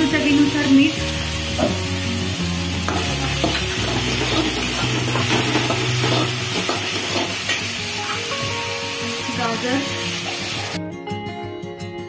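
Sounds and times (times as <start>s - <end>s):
vegetables sizzling in oil: 0.0s - 10.8s
metal spatula scraping pan: 2.8s - 7.6s.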